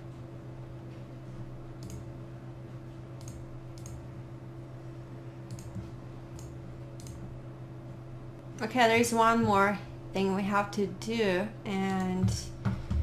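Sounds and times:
low electrical hum: 0.0s - 13.0s
computer mouse clicking: 1.8s - 2.1s, 3.2s - 4.0s, 5.5s - 7.2s.

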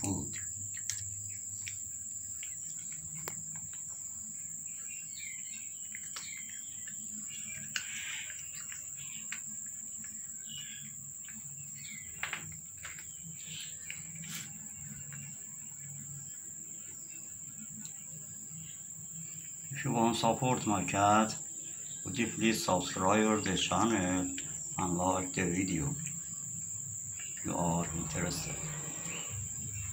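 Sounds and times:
high-pitched insect drone: 0.0s - 12.5s, 13.1s - 29.9s
bird chirps: 4.6s - 9.4s, 10.0s - 15.9s, 27.0s - 29.9s.

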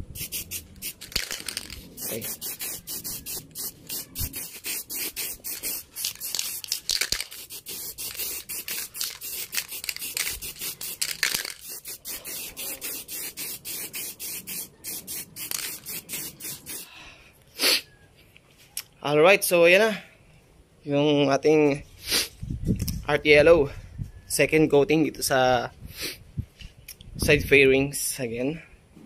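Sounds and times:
spray paint can hissing in pulses: 0.1s - 16.9s.

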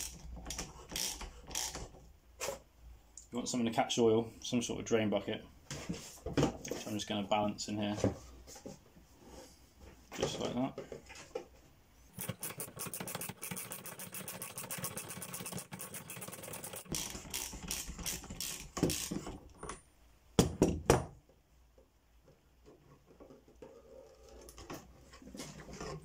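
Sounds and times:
ratchet wrench clicking: 1.0s - 1.8s, 12.2s - 19.2s.

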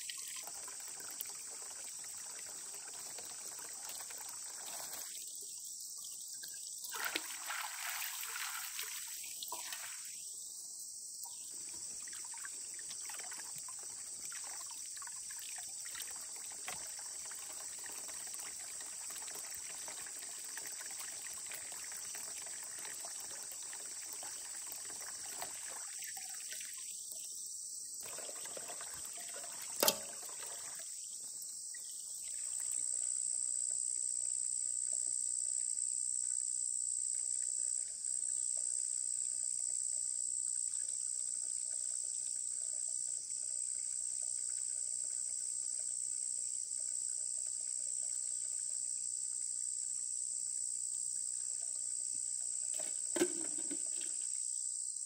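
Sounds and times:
small water splashes: 0.0s - 5.6s, 6.4s - 10.3s, 11.2s - 27.3s, 28.0s - 33.1s, 51.2s - 54.4s
water trickling into trough: 0.0s - 10.3s, 11.2s - 27.3s, 28.0s - 54.5s
high-pitched insect chorus: 0.0s - 55.0s.

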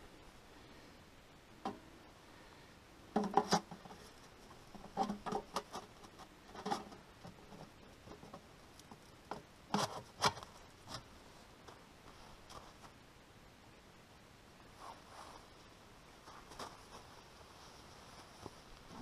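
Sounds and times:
metal chimney pipe scraping knocks: 3.2s - 4.1s.

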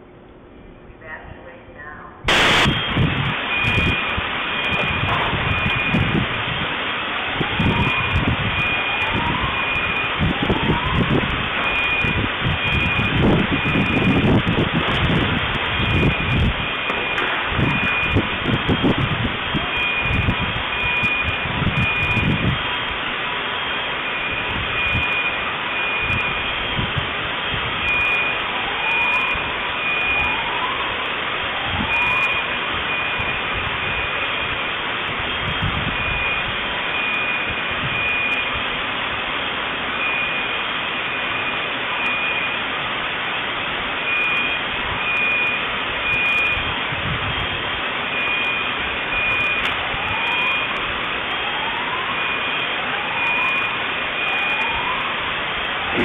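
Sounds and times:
steady rushing noise: 2.2s - 28.6s
electronic alarm beeping: 2.3s - 6.6s, 7.4s - 23.0s, 23.6s - 27.0s, 27.8s - 34.6s, 35.3s - 38.6s, 40.0s - 42.6s, 44.0s - 50.8s, 51.4s - 55.0s.

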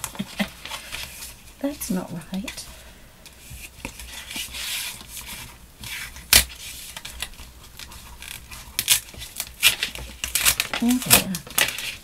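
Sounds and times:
paper rustling and crinkling: 0.0s - 1.7s, 3.4s - 12.0s
paper crackling: 3.8s - 12.0s.

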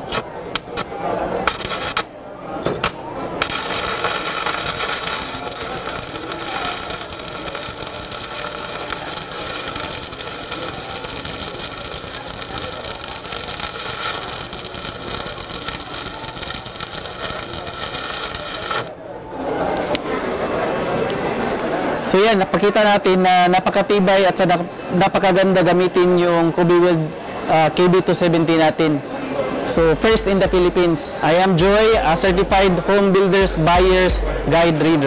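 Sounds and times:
arc welding crackling: 0.0s - 2.1s, 2.8s - 19.0s.

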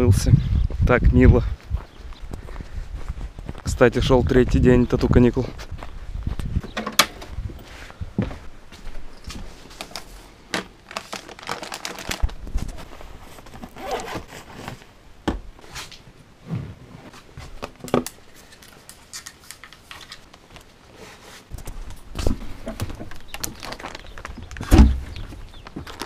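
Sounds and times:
plastic packaging crinkling: 10.8s - 14.5s, 22.8s - 26.0s
heavy thumps: 24.6s - 25.3s.

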